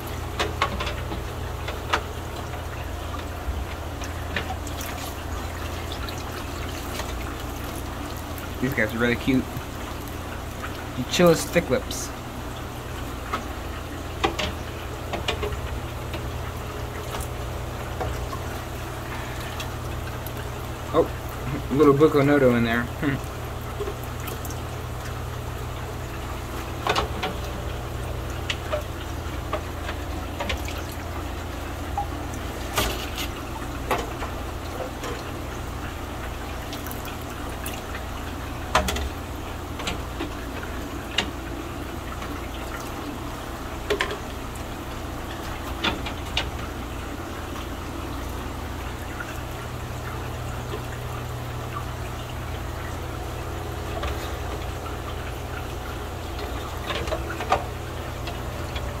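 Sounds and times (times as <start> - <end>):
aquarium water bubbling: 0.0 - 59.0
steady low hum: 0.0 - 59.0
net splashes and lid knocks: 32.6 - 34.2.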